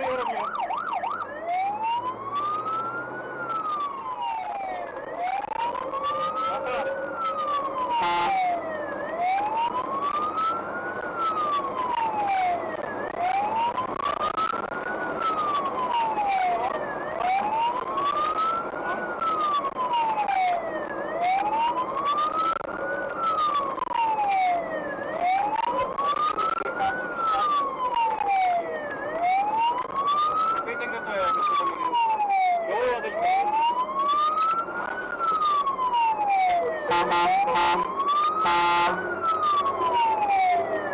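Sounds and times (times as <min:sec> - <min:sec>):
fire engine siren wailing: 0:00.0 - 0:40.9
truck road noise: 0:00.0 - 0:40.9.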